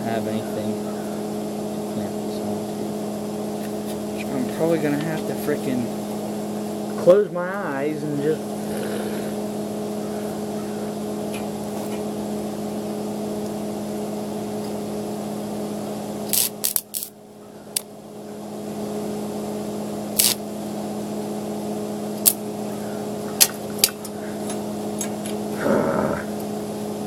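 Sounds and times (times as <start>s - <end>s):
steady low hum: 0.0s - 27.0s
arc welder crackling: 2.6s - 18.1s, 18.7s - 25.6s
sharp welding pops: 16.3s - 17.1s, 20.1s - 20.5s, 22.2s - 22.4s, 23.4s - 24.1s.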